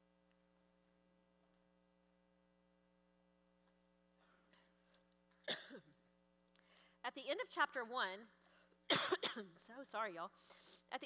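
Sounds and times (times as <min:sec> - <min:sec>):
woman coughing: 0:05.5 - 0:06.0, 0:08.9 - 0:09.6.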